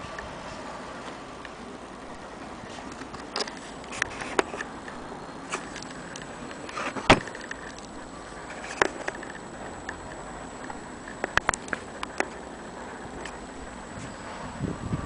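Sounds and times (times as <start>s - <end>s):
steady background hiss: 0.0s - 15.0s
handling clicks and knocks: 2.8s - 13.4s.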